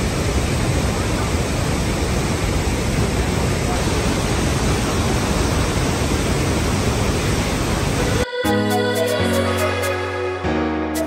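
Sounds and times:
waterfall roaring: 0.0s - 8.2s.

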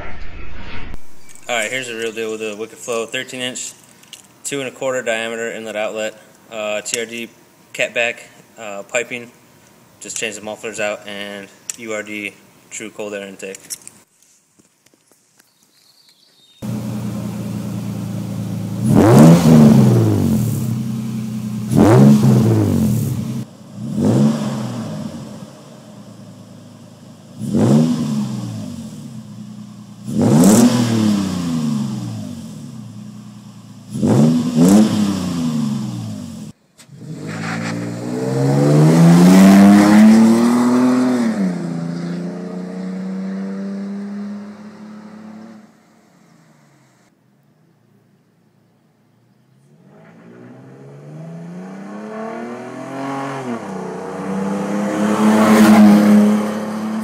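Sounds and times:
pickup truck exhaust revving: 16.6s - 25.4s, 27.4s - 33.1s, 33.9s - 43.2s.

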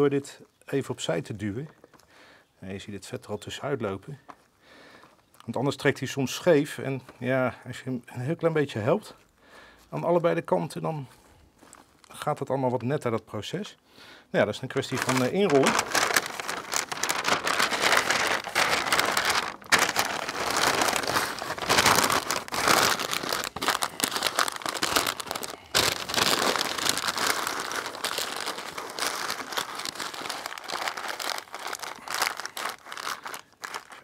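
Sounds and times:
paper crinkling and rustling: 14.7s - 34.0s.

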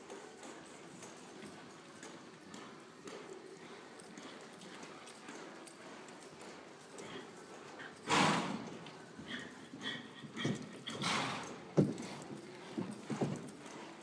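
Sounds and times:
horse hooves thudding in dirt: 6.4s - 14.0s.

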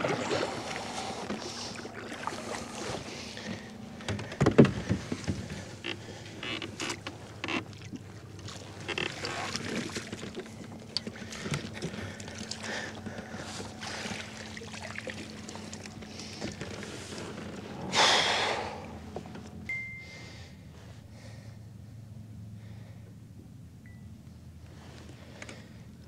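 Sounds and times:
faint steady hum: 0.0s - 26.0s
knocks of rod net and hull: 2.6s - 5.8s
fish splashing at water surface: 13.8s - 16.4s.

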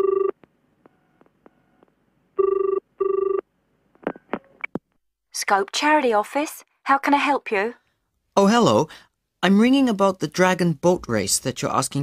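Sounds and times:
telephone ringing: 0.0s - 1.8s, 2.4s - 3.5s.

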